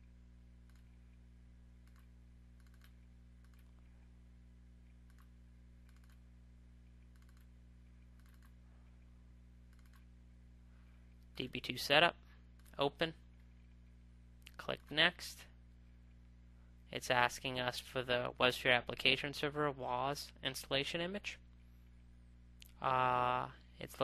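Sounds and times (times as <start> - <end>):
low electrical hum: 0.0 - 24.0
computer mouse clicks: 0.6 - 1.2, 1.8 - 4.0, 4.8 - 6.2, 6.8 - 9.0, 9.7 - 10.1.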